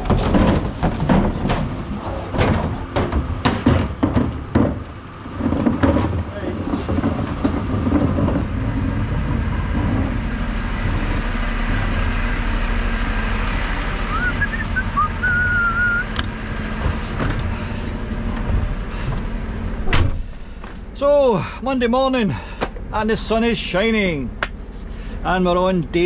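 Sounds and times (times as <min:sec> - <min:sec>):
lorry engine rumbling: 0:00.0 - 0:26.0
wavering whistled phrase: 0:14.1 - 0:16.1.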